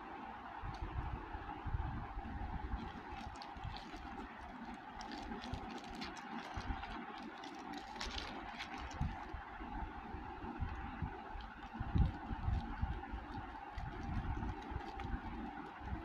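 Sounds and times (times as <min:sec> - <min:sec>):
steady background hum: 0:00.0 - 0:16.0
plastic mailer bag crinkling: 0:02.6 - 0:09.4, 0:10.4 - 0:16.0.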